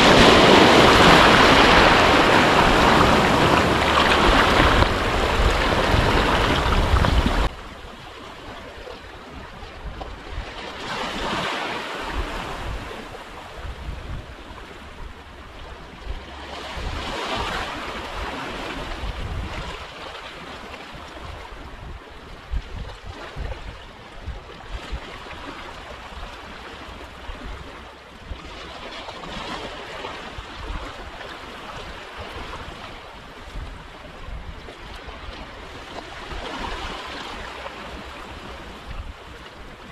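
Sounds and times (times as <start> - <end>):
sea waves washing on shore: 0.0 - 39.9
wind buffeting microphone: 0.0 - 39.9.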